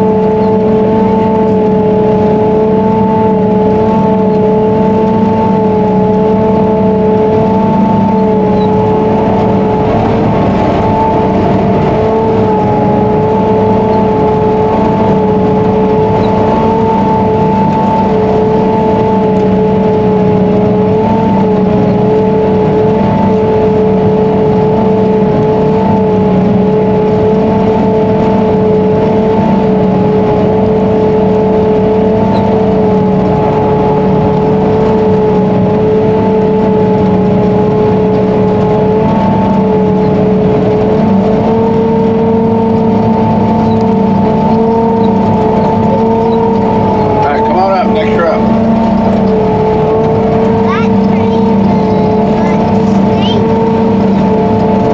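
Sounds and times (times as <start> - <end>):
even machine whine: 0.0 - 54.9
harvester machine drone: 0.0 - 54.9.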